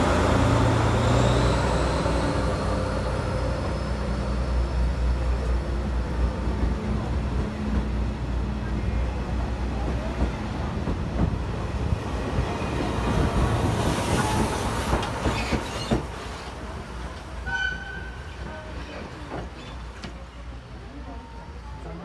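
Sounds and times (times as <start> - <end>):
steam train passing: 0.0 - 22.0
wheels clacking over rail joints: 9.8 - 20.2.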